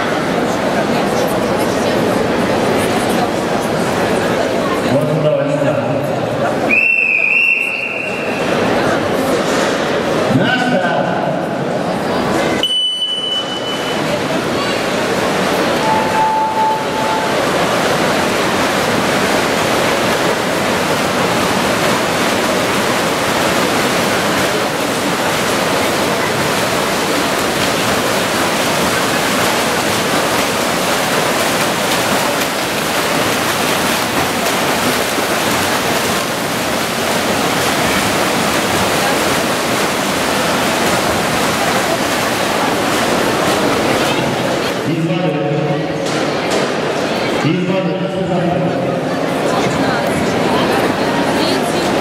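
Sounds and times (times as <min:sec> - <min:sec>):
swimmers splashing water: 0:06.2 - 0:52.0
short steady beep: 0:12.6 - 0:14.1, 0:15.8 - 0:17.4.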